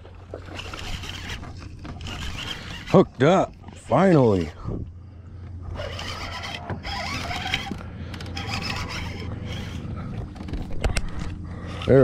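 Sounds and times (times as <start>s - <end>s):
fishing reel cranking: 0.4s - 3.2s, 5.7s - 9.9s.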